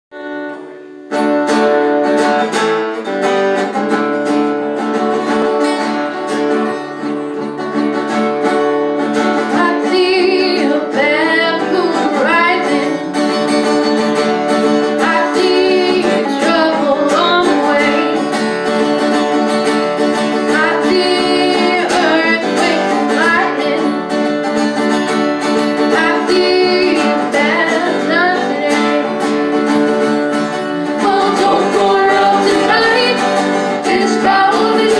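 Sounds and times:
guitar playing: 0.1 - 34.9
person singing: 9.4 - 13.4, 14.7 - 18.4, 20.2 - 24.2, 25.5 - 34.9.

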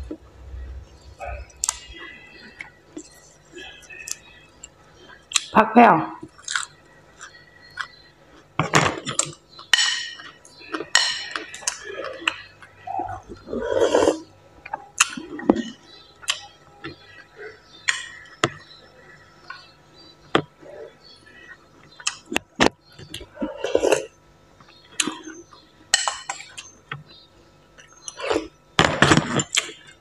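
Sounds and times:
wet mouth eating sounds: 6.2 - 9.4.

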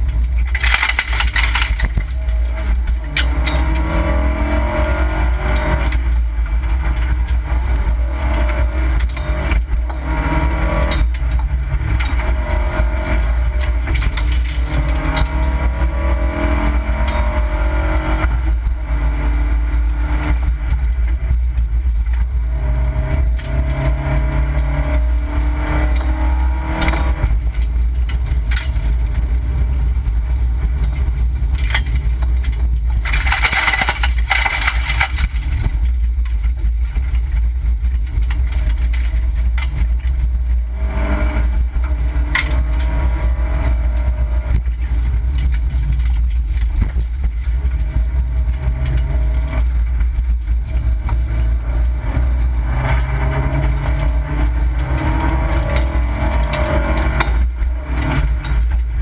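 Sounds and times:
car engine accelerating: 0.0 - 59.0
harsh scraping rush: 0.0 - 59.0
low rumble: 0.0 - 59.0.

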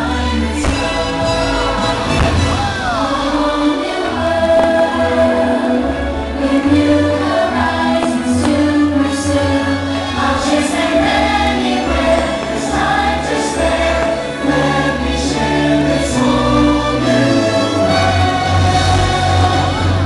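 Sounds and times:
choir singing: 0.0 - 20.0
orchestral music: 0.0 - 20.0
firework bursts: 0.6 - 3.4.

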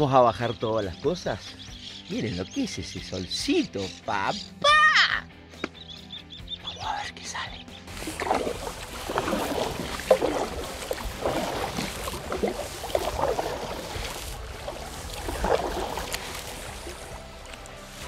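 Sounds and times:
water splashing around a kayak: 7.9 - 18.0.

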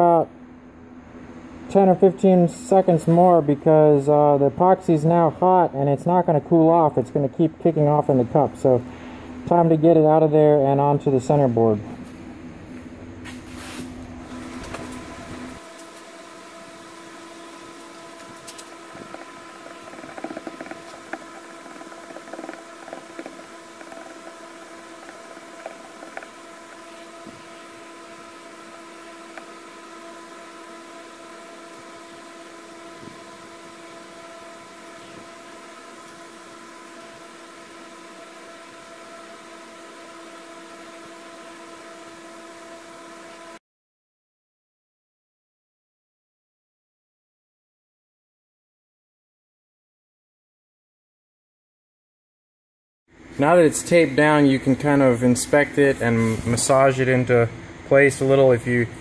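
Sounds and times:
steady hum: 0.0 - 43.6, 53.2 - 59.0
stir stick scraping in plastic cup: 18.2 - 29.7.

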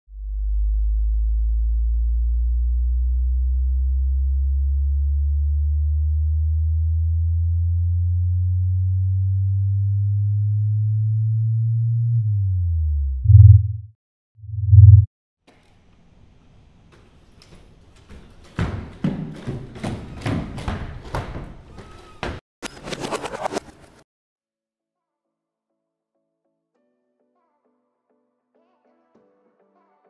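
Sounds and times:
loud low electronic pulses: 0.1 - 15.1
rising electronic tone: 3.7 - 15.1.

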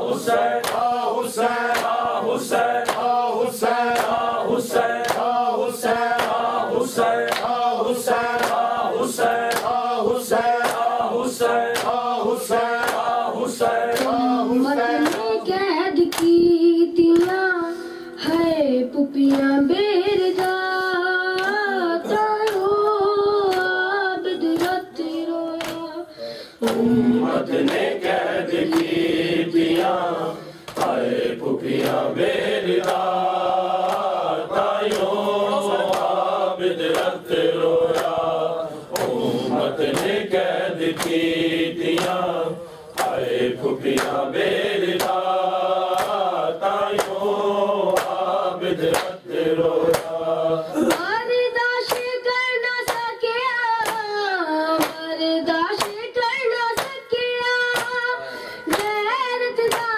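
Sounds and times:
men chanting in unison: 0.0 - 15.5, 26.6 - 51.0
person singing slow melody: 14.0 - 15.4, 24.9 - 27.5.

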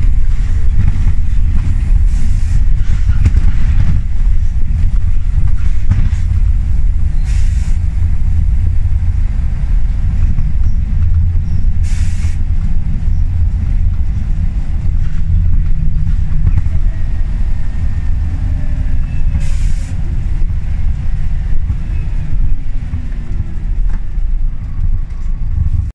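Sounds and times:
bus engine and road rumble: 0.0 - 25.9
short hisses of air: 7.2 - 7.8, 11.8 - 12.4, 19.4 - 20.0.

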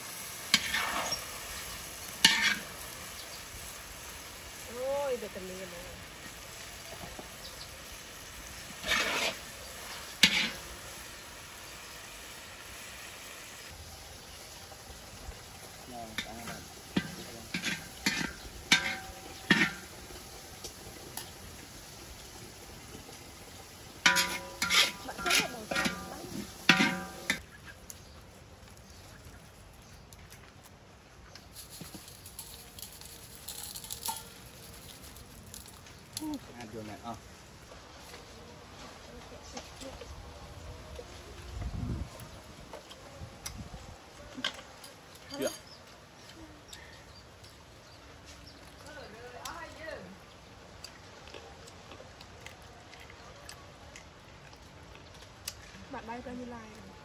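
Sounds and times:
metal spatula scraping cookware: 0.4 - 1.5, 2.2 - 2.8, 8.7 - 10.8, 16.2 - 20.0, 24.0 - 27.4
sharp metal clank: 26.7 - 27.4.

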